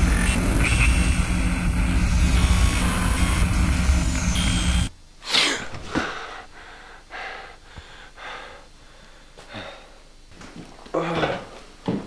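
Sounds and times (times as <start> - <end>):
loud dense low rumble: 0.0 - 4.9
person gasping: 5.3 - 10.0
person breathing hard: 5.3 - 10.1.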